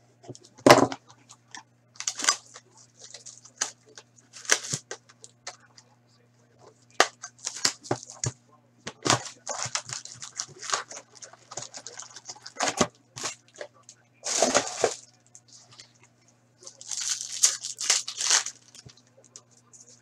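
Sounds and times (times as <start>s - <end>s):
faint electrical hum: 0.0s - 20.0s
foil wrappers crinkling: 2.0s - 5.4s, 6.9s - 8.3s, 8.9s - 15.9s, 16.6s - 20.0s
cards being handled: 2.0s - 5.6s, 8.9s - 16.0s.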